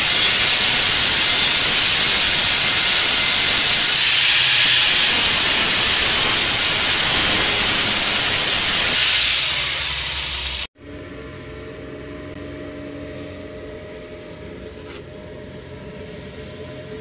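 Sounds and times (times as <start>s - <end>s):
angle grinder cutting steel: 0.0s - 10.7s.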